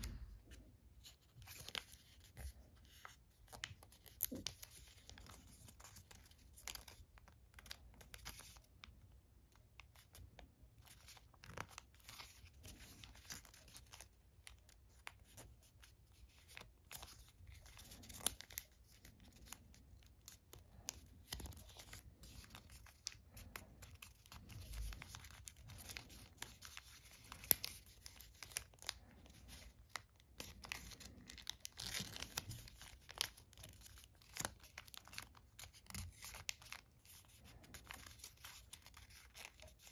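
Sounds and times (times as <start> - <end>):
paper rustling and crinkling: 0.0 - 8.9, 9.8 - 39.9.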